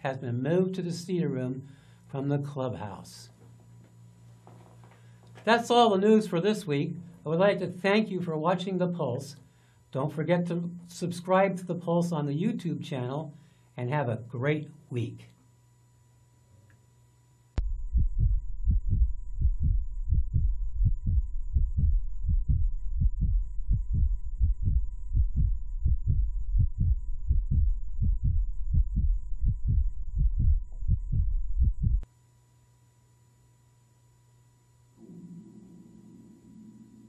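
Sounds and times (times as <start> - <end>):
faint electrical hum: 0.0 - 37.0
heavy heartbeat-like thumping: 17.6 - 32.1.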